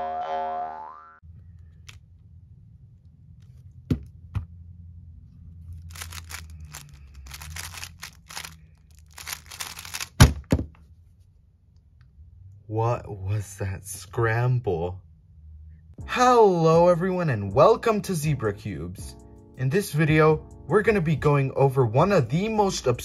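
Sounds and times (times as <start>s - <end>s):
speed cube rattling clatter: 5.9s - 10.2s.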